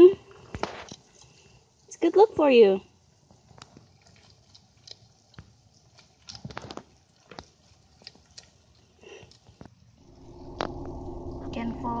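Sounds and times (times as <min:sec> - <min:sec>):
lizard chewing with crunching clicks: 0:00.4 - 0:01.9, 0:03.0 - 0:10.0.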